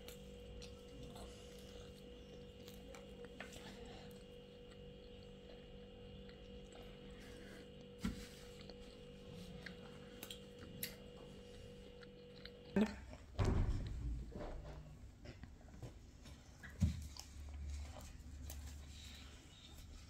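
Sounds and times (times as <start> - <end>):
child chewing food: 0.0 - 20.0
steady hum: 0.0 - 20.0.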